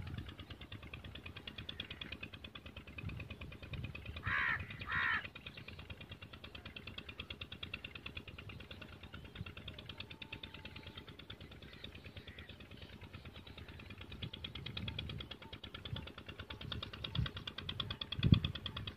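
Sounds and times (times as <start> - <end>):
tractor diesel engine idling: 0.0 - 18.9
crow cawing: 4.2 - 5.3.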